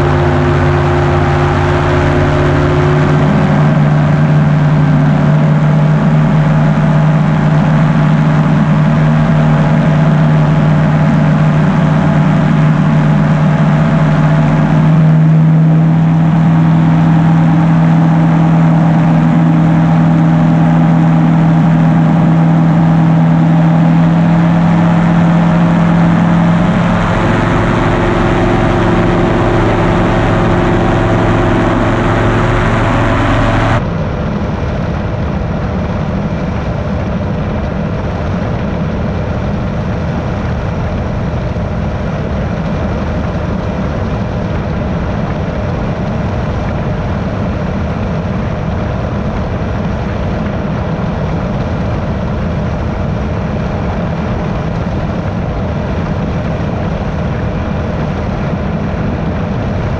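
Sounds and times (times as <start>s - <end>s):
propeller engine drone: 0.0s - 59.9s.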